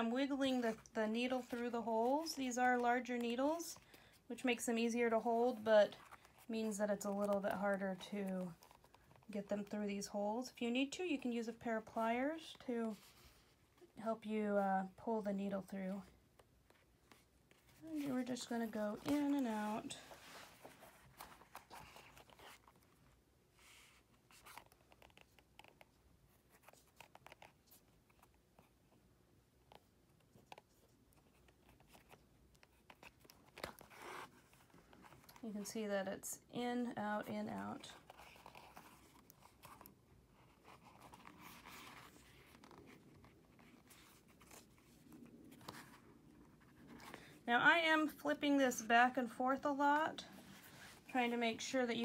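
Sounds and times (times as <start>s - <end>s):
needle and thread through leather: 16.6s - 23.0s, 29.7s - 35.8s, 37.0s - 47.1s.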